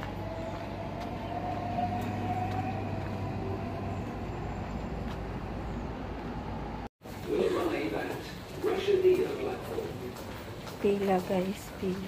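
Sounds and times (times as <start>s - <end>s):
faint whining tone: 0.0s - 6.9s
vehicle traffic rumble: 0.0s - 12.0s.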